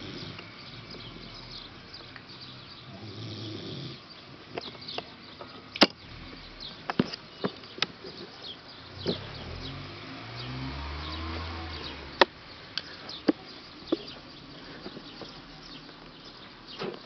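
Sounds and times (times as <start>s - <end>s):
dog snoring: 0.0s - 1.7s, 2.9s - 4.0s.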